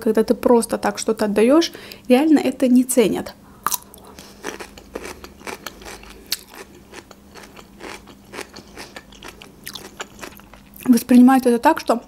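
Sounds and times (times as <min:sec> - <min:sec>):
person chewing crunchy pickle: 0:03.6 - 0:10.9.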